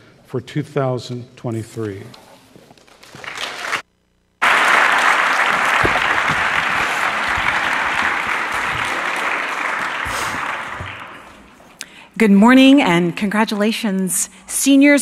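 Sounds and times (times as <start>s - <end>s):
audience applauding: 3.1s - 3.8s, 4.4s - 11.7s.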